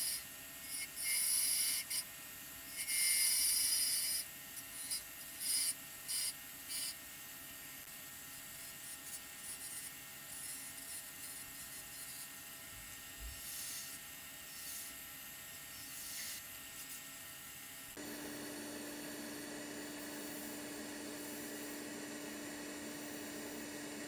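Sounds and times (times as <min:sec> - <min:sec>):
lathe sanding hum: 0:18.0 - 0:24.0
wood lathe whirring: 0:18.0 - 0:24.0.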